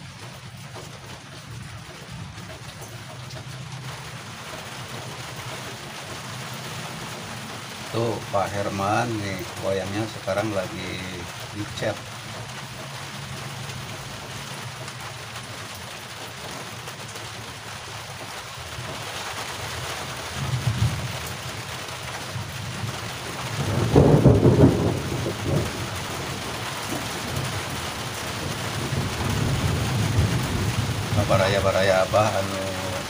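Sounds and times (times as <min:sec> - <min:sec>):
steady rain: 0:00.0 - 0:33.0
thunder rumbling: 0:20.3 - 0:21.7, 0:22.3 - 0:33.0.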